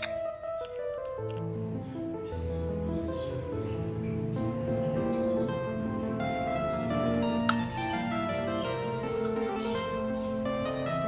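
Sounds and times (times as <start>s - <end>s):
gentle melody of held notes: 0.0s - 11.0s
plucked string instruments: 6.2s - 11.0s.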